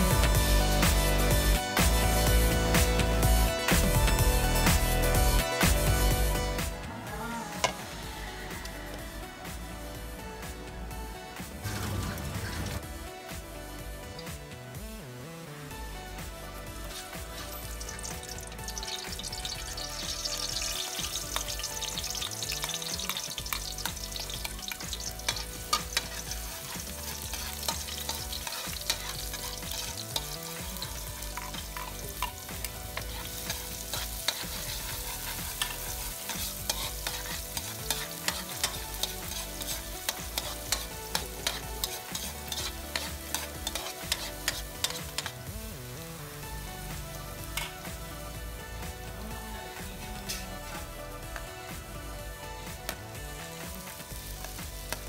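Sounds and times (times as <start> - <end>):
onion and garlic frying: 0.0 - 10.5, 15.9 - 55.0
oil sizzling in a wok: 0.0 - 14.8, 15.7 - 55.0
metal spoon scraping wok: 17.0 - 45.4.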